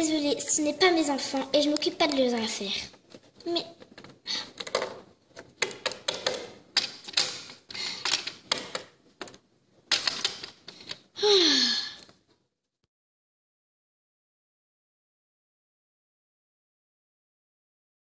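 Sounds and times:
plastic toys tapping on wood: 3.9 - 11.0.

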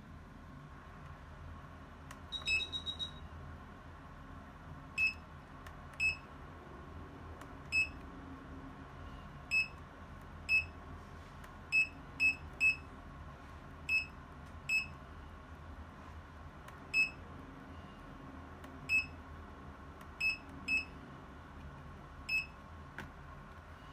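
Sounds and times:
faint steady hum: 0.0 - 23.9
short high beeps: 2.3 - 3.3.

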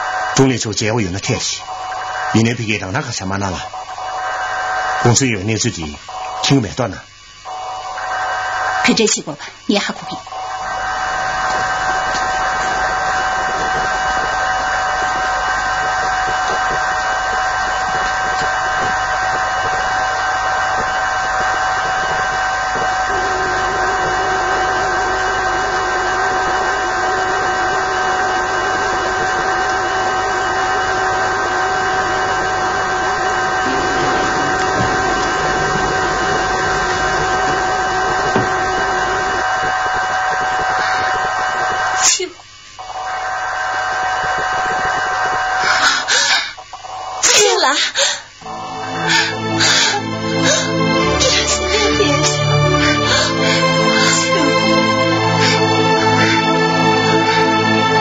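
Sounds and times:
hum of steady tones: 0.0 - 58.0
loud hiss: 10.6 - 42.3, 47.9 - 58.0.

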